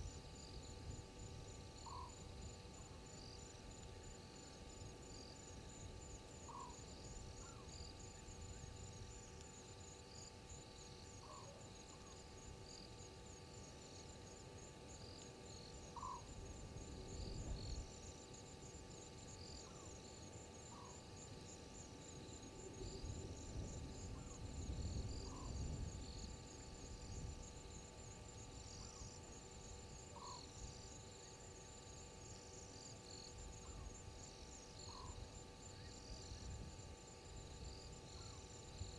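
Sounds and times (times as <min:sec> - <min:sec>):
insect chirps: 0:00.0 - 0:38.9
insect trilling: 0:01.8 - 0:02.6, 0:15.5 - 0:17.8.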